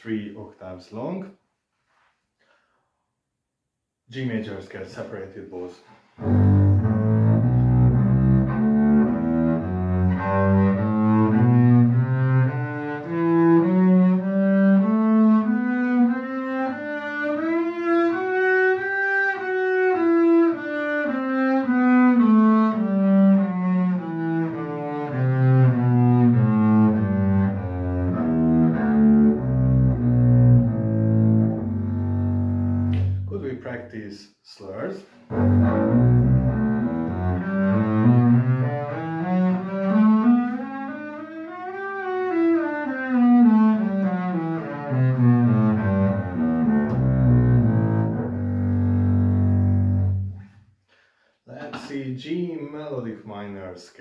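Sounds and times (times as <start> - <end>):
double bass bowed scale: 6.2 - 33.5, 35.2 - 50.6.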